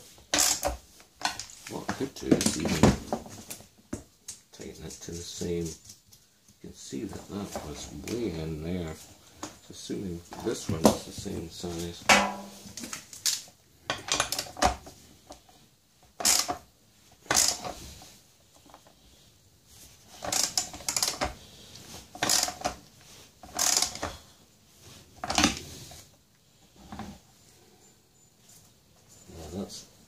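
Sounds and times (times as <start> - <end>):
socket ratchet clicking: 16.2 - 16.6, 23.5 - 24.1.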